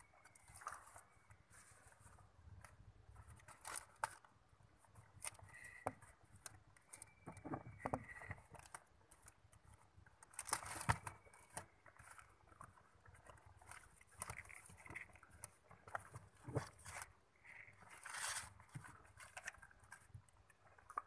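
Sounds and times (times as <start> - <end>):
faint high squeak: 6.9 - 8.5
plastic bag rustling and crinkling: 10.2 - 21.0.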